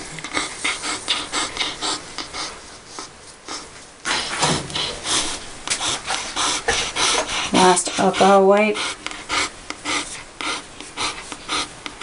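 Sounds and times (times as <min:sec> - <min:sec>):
gauze scrubbing on fur: 0:00.3 - 0:09.0.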